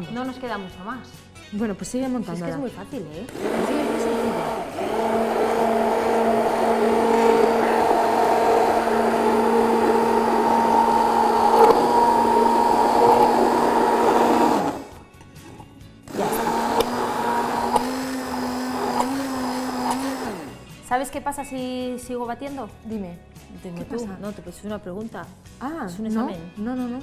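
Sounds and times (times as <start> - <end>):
stick blender motor humming: 3.3 - 15.0, 16.1 - 20.6.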